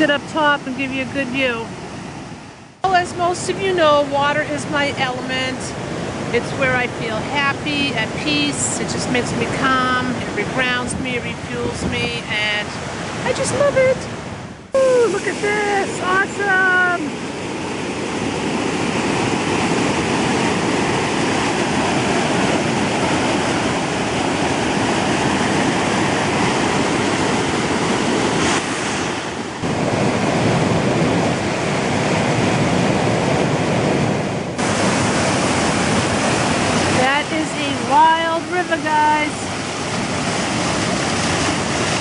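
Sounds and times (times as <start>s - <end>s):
river rushing over a spillway: 14.7s - 42.0s.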